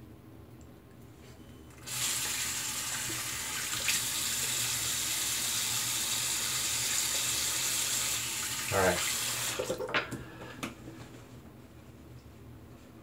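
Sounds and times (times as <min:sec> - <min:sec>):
water running into basin: 0:01.8 - 0:10.0.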